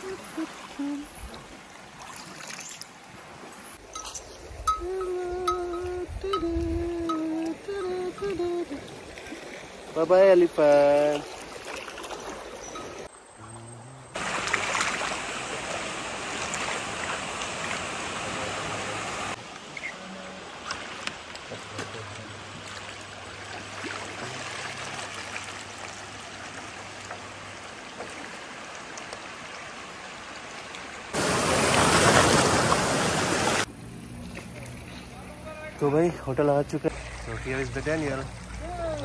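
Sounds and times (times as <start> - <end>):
river water rushing: 0.0 - 5.2, 14.2 - 33.7, 36.3 - 39.0.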